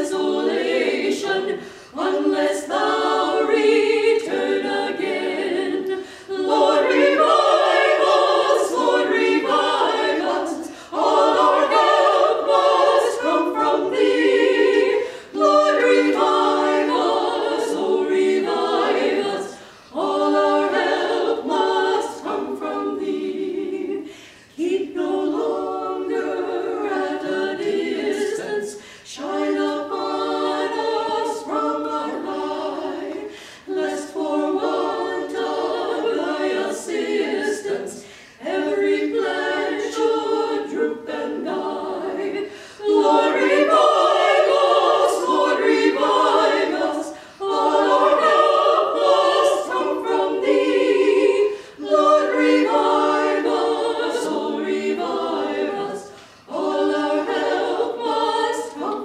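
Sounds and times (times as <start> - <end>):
women singing in harmony: 0.0 - 59.0
singers breathing: 1.6 - 2.0, 6.0 - 6.4, 10.6 - 11.0, 15.0 - 15.4, 19.5 - 20.0, 24.0 - 24.6, 28.8 - 29.1, 33.3 - 33.7, 38.0 - 38.4, 42.5 - 42.8, 47.1 - 47.4, 51.4 - 51.8, 56.1 - 56.5.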